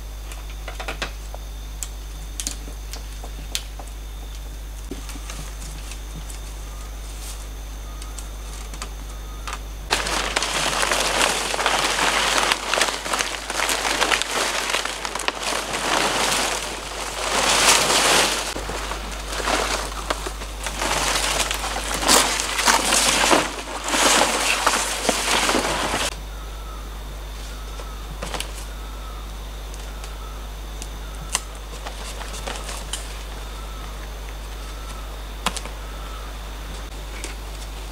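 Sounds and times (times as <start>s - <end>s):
palm fronds rustling and crackling: 1.7s - 37.9s.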